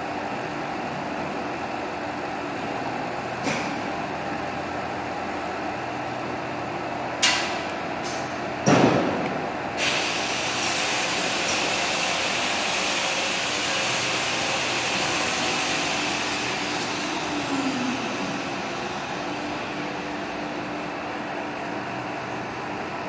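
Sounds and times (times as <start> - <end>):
welding machine hissing: 9.8 - 19.7.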